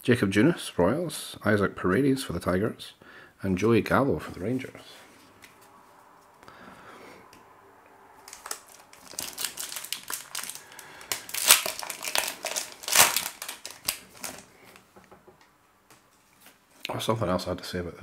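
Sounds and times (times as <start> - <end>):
card pack wrapper crinkling: 8.2 - 14.8
wrapper ripping: 8.2 - 14.8.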